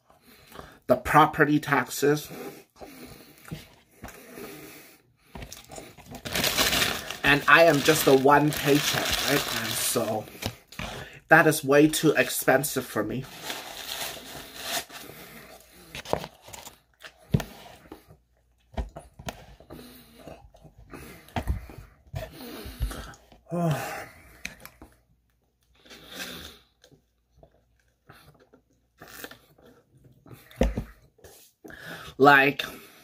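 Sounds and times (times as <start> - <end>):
paper wrapper rustling: 6.0 - 10.5, 13.2 - 15.1
person chewing: 25.7 - 30.6.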